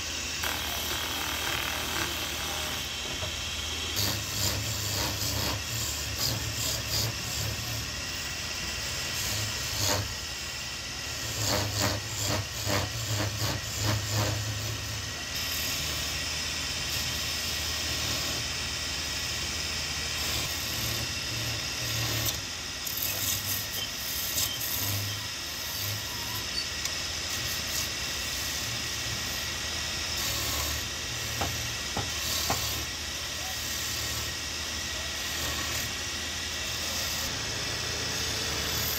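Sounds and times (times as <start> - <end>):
chisel scraping spinning wood: 0.0 - 8.0, 11.2 - 15.9
wood lathe humming: 0.0 - 38.9.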